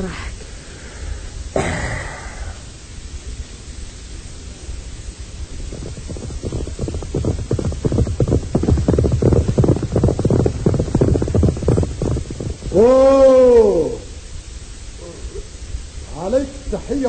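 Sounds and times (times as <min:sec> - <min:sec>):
horses' hooves galloping: 0:03.4 - 0:17.0.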